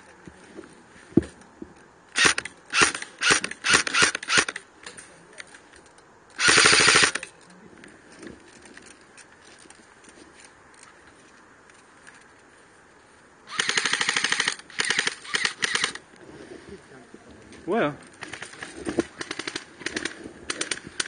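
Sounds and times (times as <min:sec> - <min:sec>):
airsoft rifle bursts: 0:02.1 - 0:04.6, 0:06.4 - 0:07.3, 0:13.5 - 0:16.0, 0:18.2 - 0:21.0.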